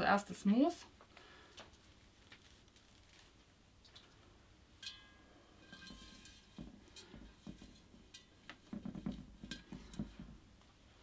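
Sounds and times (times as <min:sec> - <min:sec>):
glass vase clinking: 0:04.8 - 0:10.2.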